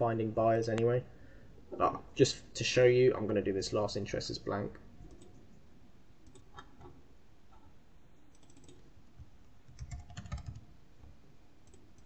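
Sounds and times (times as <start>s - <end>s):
typing on computer keyboard: 8.3s - 8.8s, 9.7s - 10.7s.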